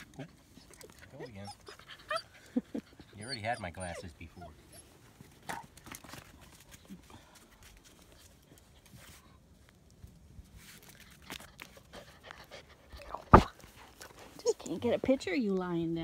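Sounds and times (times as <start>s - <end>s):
puppy paws clicking on concrete: 5.2s - 9.1s.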